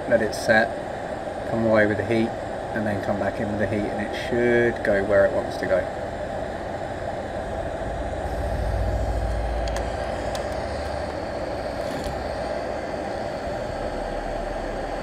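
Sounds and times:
hot air blower rushing: 0:05.9 - 0:15.0
low rumble: 0:06.3 - 0:15.0.

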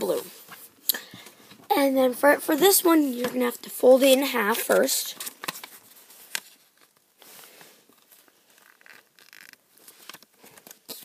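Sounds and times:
paper rustling and crinkling: 0:04.0 - 0:11.0.

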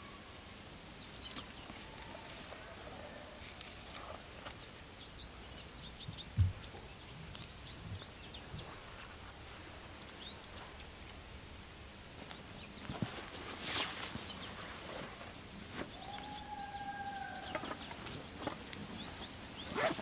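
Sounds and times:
small bird chirping: 0:15.8 - 0:20.0.

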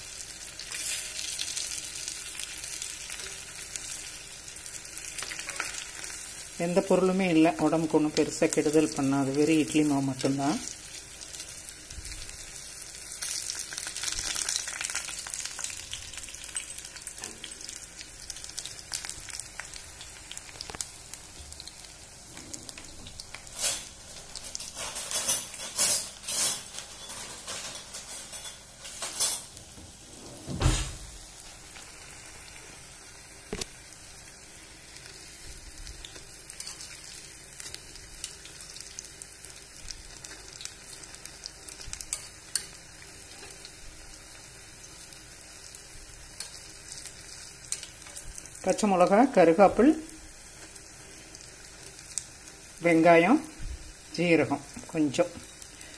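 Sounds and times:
food sizzling in hot oil: 0:00.0 - 0:55.9
utensil clinking and scraping pan: 0:23.5 - 0:29.5.

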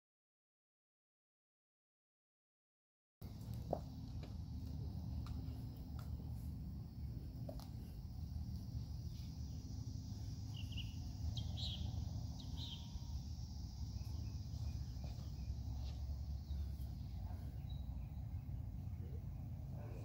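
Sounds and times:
high insect drone: 0:03.3 - 0:17.5.

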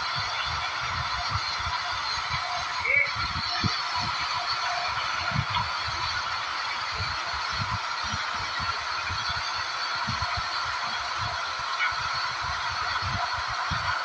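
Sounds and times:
loud machine noise: 0:00.0 - 0:14.0.

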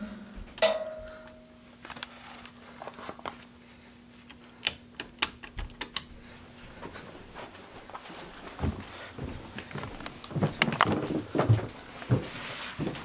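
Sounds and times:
brief ringing tone: 0:00.0 - 0:01.6
faint steady hum: 0:00.0 - 0:13.0.

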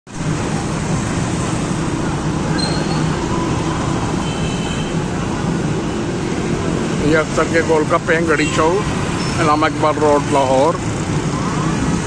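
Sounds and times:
city traffic noise: 0:00.0 - 0:12.0.

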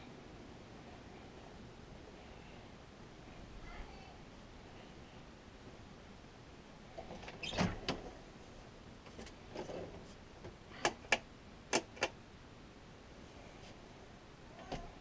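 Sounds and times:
closet door sliding on track: 0:07.0 - 0:08.1.

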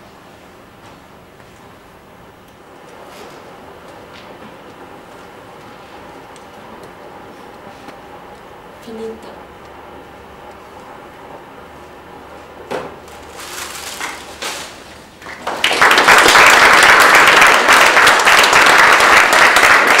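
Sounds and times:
audience applauding: 0:15.2 - 0:20.0.

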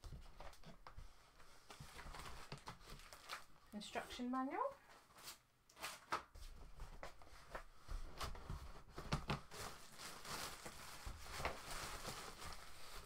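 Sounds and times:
packing material rustling in box: 0:01.4 - 0:03.6, 0:06.8 - 0:13.0.

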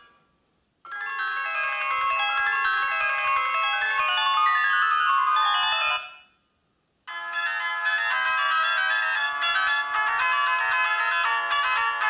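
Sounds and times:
phone ringtone melodies: 0:00.9 - 0:06.3, 0:07.1 - 0:12.0.

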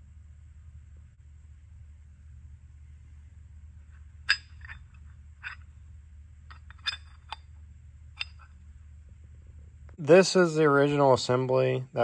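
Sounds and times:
low steady hum: 0:00.0 - 0:12.0
metal parts clinking: 0:04.3 - 0:05.7, 0:06.5 - 0:07.5.

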